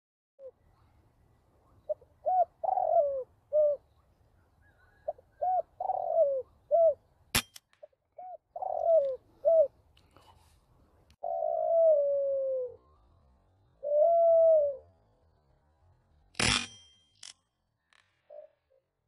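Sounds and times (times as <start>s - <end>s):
dove cooing: 1.7s - 4.0s, 4.6s - 7.0s, 8.2s - 9.8s, 11.2s - 13.0s, 13.8s - 14.9s
sharp click: 7.3s - 7.8s.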